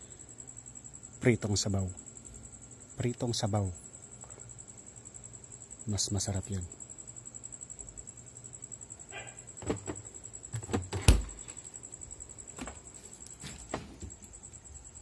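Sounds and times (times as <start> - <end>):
knocks and clunks in refrigerator: 9.6 - 10.0, 10.6 - 11.4.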